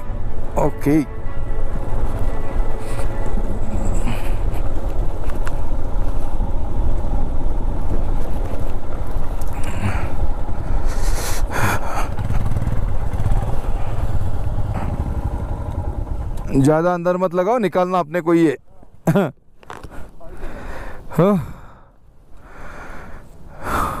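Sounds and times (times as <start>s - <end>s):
motorcycle engine running: 1.1s - 16.8s.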